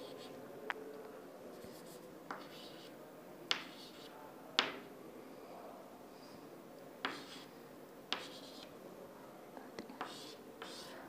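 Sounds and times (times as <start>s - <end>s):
chalk scratching on chalkboard: 0.0s - 0.3s, 1.6s - 2.9s, 3.5s - 4.1s, 7.1s - 7.5s, 8.1s - 8.7s, 10.0s - 11.0s
chalk tapping on chalkboard: 1.8s - 2.9s, 3.5s - 4.9s, 7.0s - 7.5s, 8.1s - 8.7s, 10.0s - 10.9s.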